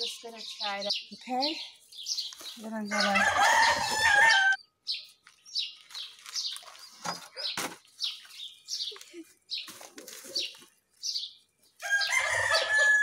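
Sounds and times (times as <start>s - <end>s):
rooster crowing: 2.9s - 4.6s, 11.8s - 13.0s.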